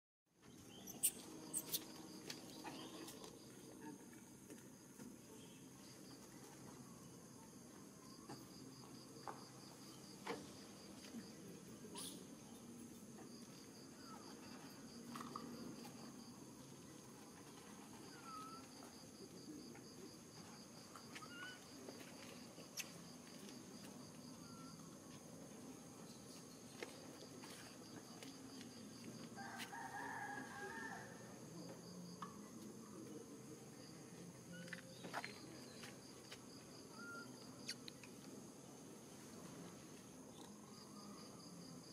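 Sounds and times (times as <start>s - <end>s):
bird chirps: 0.4s - 1.9s
insects droning and chirping: 0.4s - 41.9s
rooster crowing: 29.4s - 31.3s.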